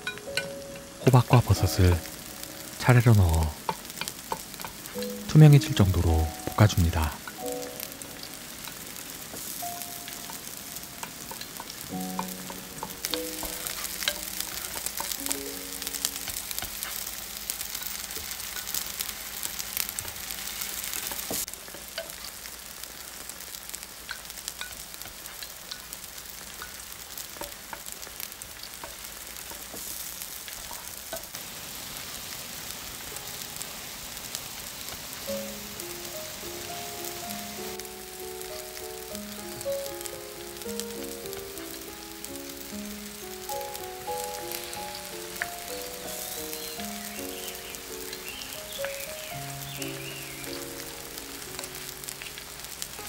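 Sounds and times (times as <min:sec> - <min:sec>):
crackles and clicks: 0:00.0 - 0:53.0
vegetables sizzling in hot oil: 0:00.0 - 0:53.0
wooden spoon stirring: 0:08.6 - 0:18.8.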